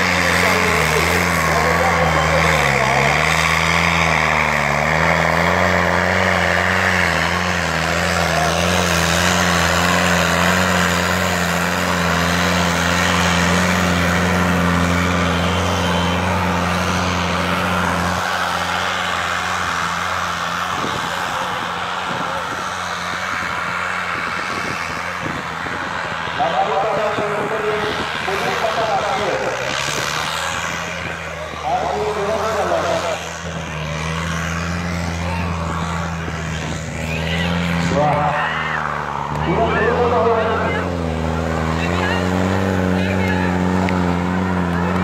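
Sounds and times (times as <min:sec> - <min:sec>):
noisy background: 0:00.0 - 0:45.0
tractor diesel engine under load: 0:00.0 - 0:45.0.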